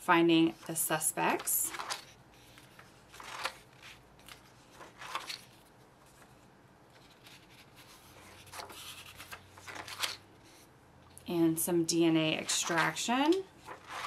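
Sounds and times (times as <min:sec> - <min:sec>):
paper pages turning: 0:01.3 - 0:10.7, 0:12.4 - 0:14.0.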